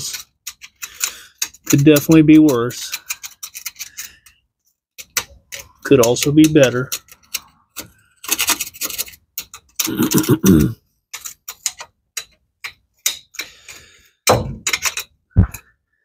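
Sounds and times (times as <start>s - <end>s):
clicks and knocks of hand tools: 0.0s - 4.4s, 11.1s - 15.7s.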